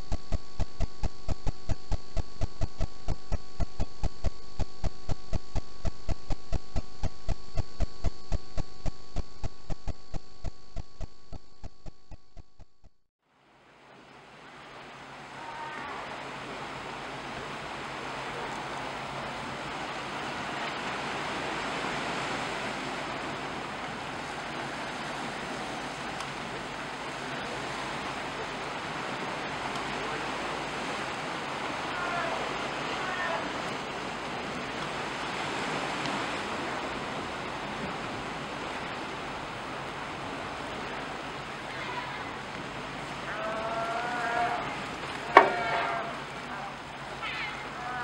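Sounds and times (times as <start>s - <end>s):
choppy sea water washing: 0.0s - 11.4s, 13.4s - 48.0s
faint low hum: 0.0s - 13.0s.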